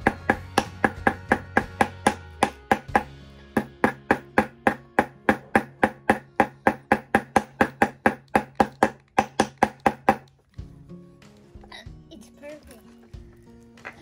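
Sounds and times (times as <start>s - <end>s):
small hammer tapping: 0.0s - 10.3s.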